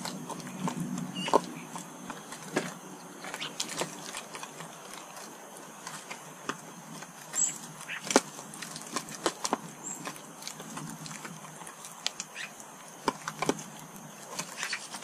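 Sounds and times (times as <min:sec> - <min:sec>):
bird chirp: 0:00.0 - 0:03.7, 0:07.3 - 0:08.2, 0:09.8 - 0:10.3, 0:11.7 - 0:12.6, 0:14.4 - 0:15.0.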